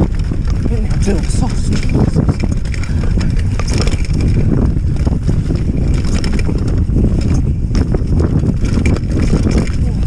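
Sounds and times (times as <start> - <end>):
bike clicks and rattles: 0.0 - 10.0
tyres rumbling on dirt trail: 0.0 - 10.0
wind buffeting microphone: 0.0 - 10.0.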